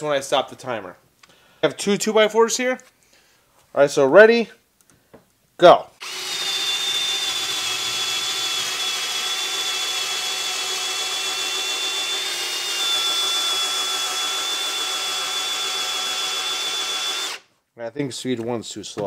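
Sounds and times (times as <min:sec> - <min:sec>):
drill motor whining under load: 0:06.0 - 0:17.4.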